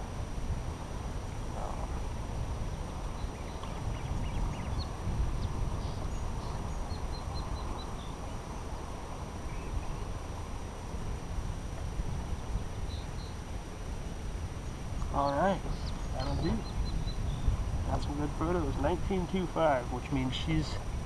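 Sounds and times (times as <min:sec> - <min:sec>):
water: 0:00.0 - 0:21.0
wind: 0:00.0 - 0:21.0
high bird chirps: 0:03.1 - 0:08.7, 0:15.0 - 0:17.6.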